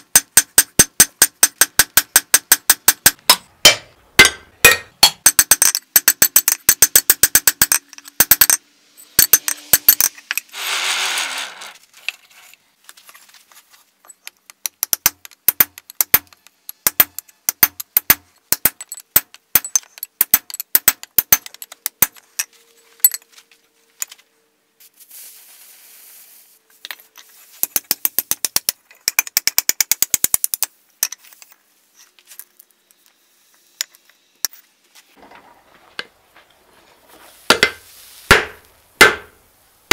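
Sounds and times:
hammer striking steel on anvil: 0.2 - 10.2, 37.5 - 39.4.

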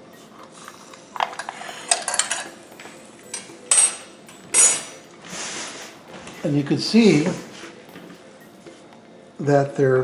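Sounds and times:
metal skewers clinking: 1.4 - 2.6.

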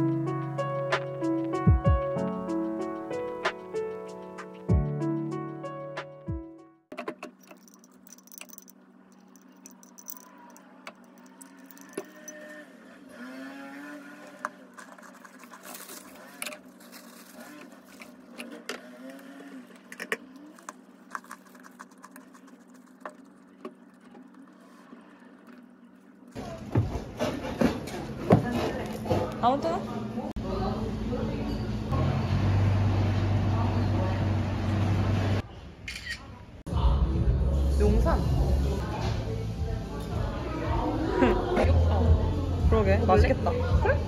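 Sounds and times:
background music: 0.0 - 6.8.

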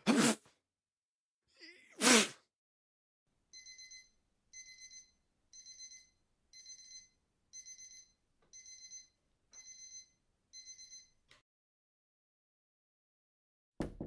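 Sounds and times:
electronic alarm beeping: 3.5 - 11.2.

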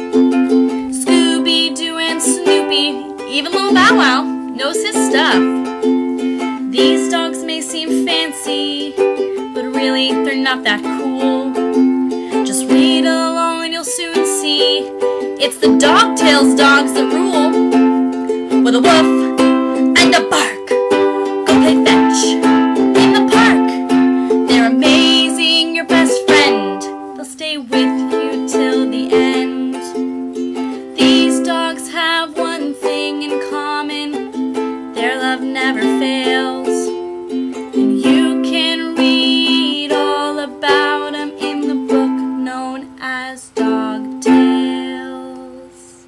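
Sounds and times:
ukulele strumming: 0.0 - 46.0.

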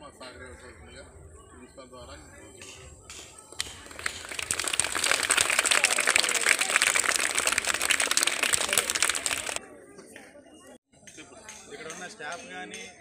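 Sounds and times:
children clapping: 3.1 - 9.6.

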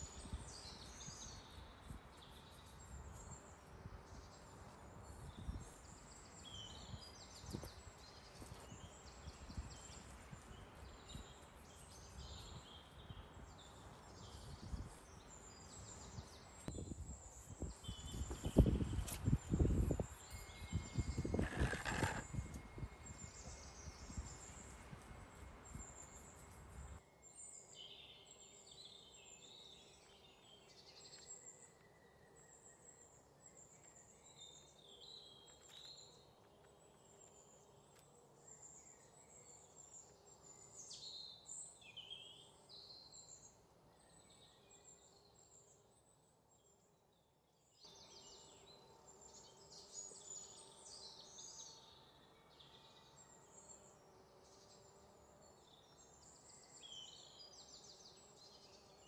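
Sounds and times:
small birds chirping: 0.0 - 46.8.

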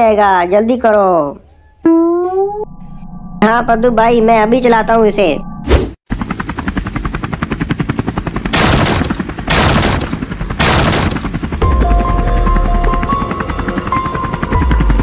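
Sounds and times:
helicopter rotor chop: 6.1 - 15.0
rushing bursts: 6.2 - 11.6.

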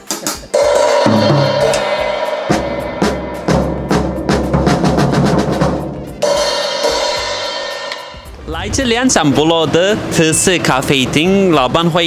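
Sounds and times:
drum strokes: 0.1 - 10.2
low bass drum thud: 1.0 - 8.6.

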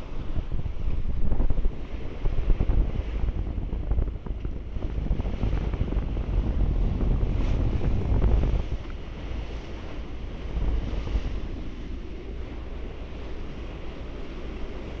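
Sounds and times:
sea water rushing past ship: 0.0 - 15.0
wind buffeting microphone: 0.0 - 15.0.

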